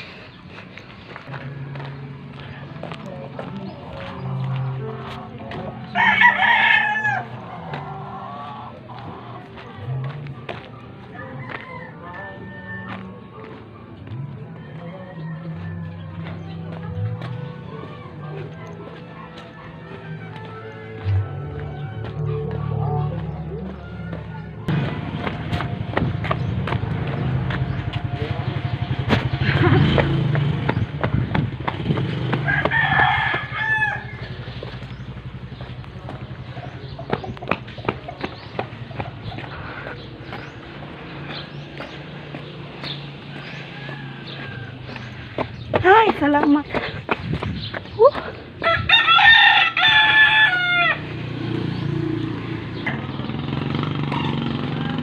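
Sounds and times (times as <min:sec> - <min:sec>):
rooster crowing: 0:06.0 - 0:08.6, 0:11.1 - 0:13.2, 0:32.4 - 0:34.3, 0:43.2 - 0:45.1, 0:48.6 - 0:51.2
low engine hum: 0:13.0 - 0:48.9.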